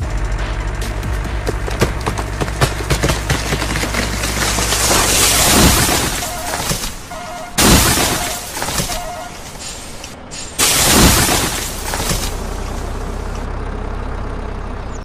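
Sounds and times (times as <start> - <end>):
tree crashing and splintering: 1.8 - 13.4.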